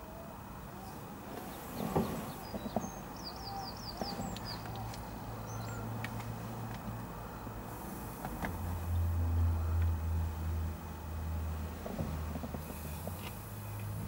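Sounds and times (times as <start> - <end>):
low steady hum: 0.0 - 14.0
small birds chirping: 0.7 - 6.2.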